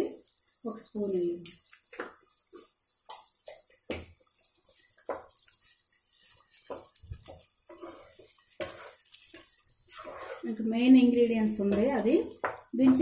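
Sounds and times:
spoon scraping pot: 0:06.1 - 0:10.7.

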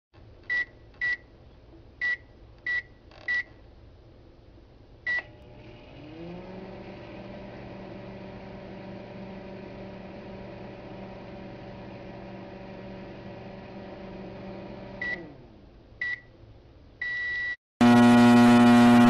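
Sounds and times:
microwave oven humming: 0:05.1 - 0:16.3, 0:17.8 - 0:19.0
microwave keypad beeps: 0:17.0 - 0:17.6.

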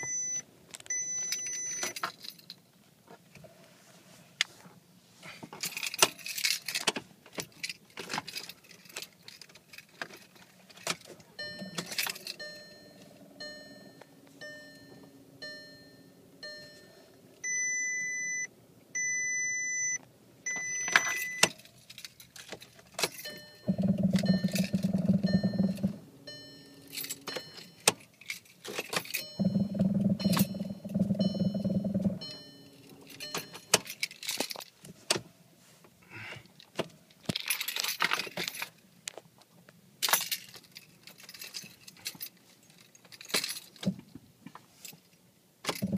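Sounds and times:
ticking chime: 0:11.4 - 0:18.5, 0:23.1 - 0:28.0, 0:29.1 - 0:34.0
long electronic beeps: 0:11.4 - 0:21.5, 0:23.3 - 0:27.8, 0:29.2 - 0:33.7
steering wheel rattling: 0:21.4 - 0:34.4
low buzzing: 0:23.7 - 0:27.3, 0:29.4 - 0:33.2.

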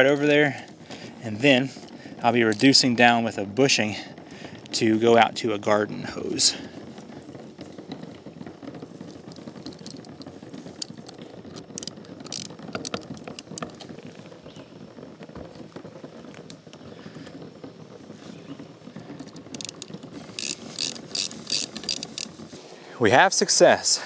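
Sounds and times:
plastic and rubber fittings handled: 0:00.0 - 0:02.8, 0:06.3 - 0:14.5, 0:15.2 - 0:22.7
socket ratchet clicking: 0:11.8 - 0:13.6, 0:19.5 - 0:22.3.

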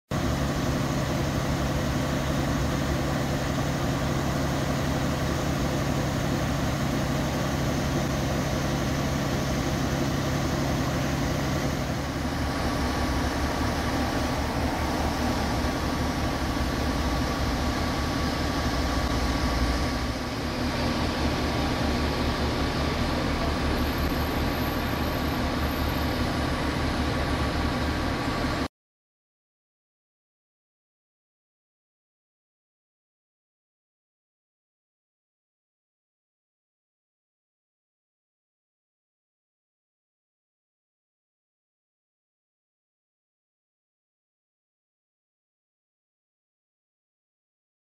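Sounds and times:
diesel engines idling: 0:00.2 - 0:28.7.

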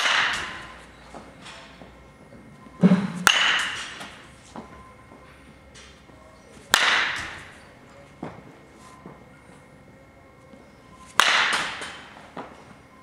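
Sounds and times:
bat hitting ball with echo: 0:00.0 - 0:00.7, 0:02.8 - 0:04.2, 0:06.7 - 0:07.6, 0:11.2 - 0:12.2.

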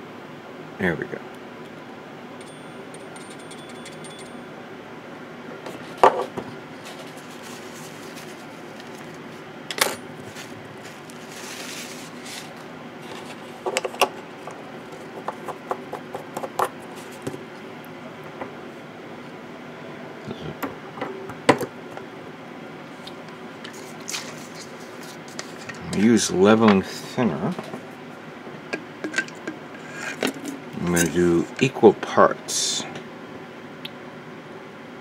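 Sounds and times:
steady background hum: 0:00.0 - 0:35.0.

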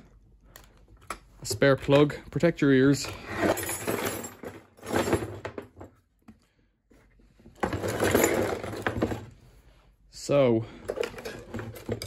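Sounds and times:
tools rattling in toolbox: 0:02.9 - 0:06.0, 0:07.6 - 0:09.3, 0:10.8 - 0:12.0.

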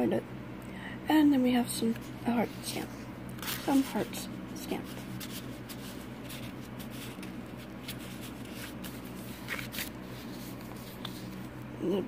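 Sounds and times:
paper rustling: 0:03.4 - 0:11.6.

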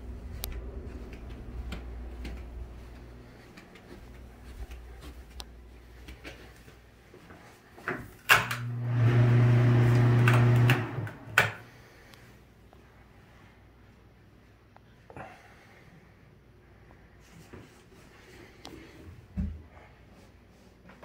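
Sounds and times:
exhaust fan humming: 0:00.0 - 0:12.6.

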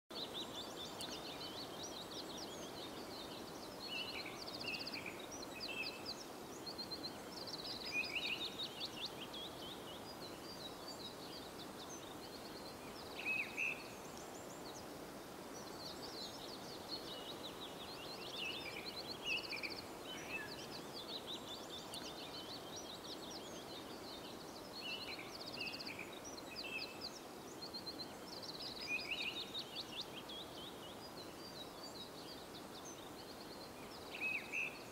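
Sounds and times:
songbirds chirping and trilling: 0:00.1 - 0:34.9.

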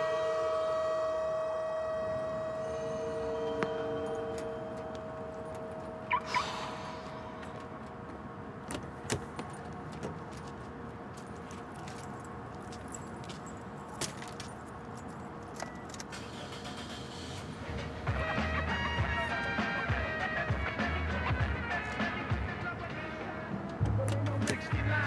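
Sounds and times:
keys jangling: 0:11.2 - 0:16.2.

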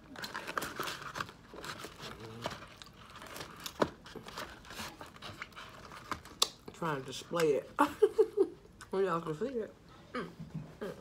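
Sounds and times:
cardboard and paper rustling: 0:00.0 - 0:06.4.

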